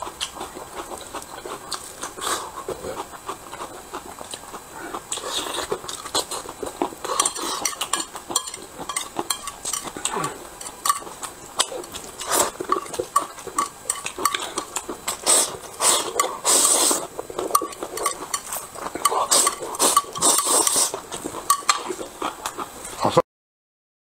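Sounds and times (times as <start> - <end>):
chopsticks clicking on a plate: 7.2 - 14.9, 21.5 - 21.9
noodles being slurped: 11.6 - 23.0.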